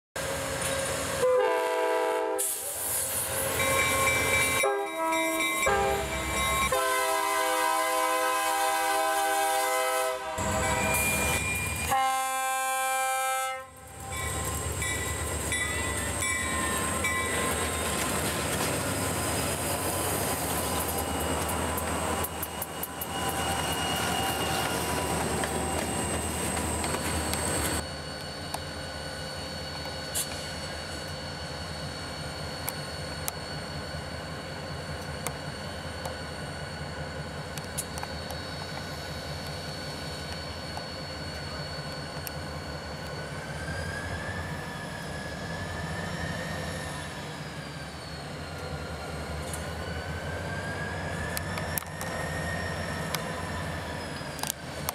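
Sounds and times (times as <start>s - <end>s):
train rumbling past on rails: 0.2s - 54.9s
locomotive air horn: 1.2s - 2.7s, 4.6s - 13.8s.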